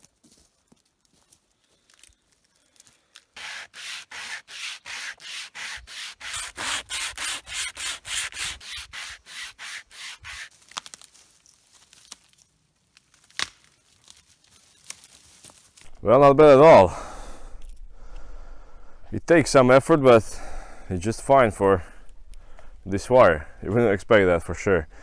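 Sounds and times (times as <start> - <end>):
wire saw scraping through wood: 3.4 - 10.5
tree trunk cracking: 10.5 - 16.1.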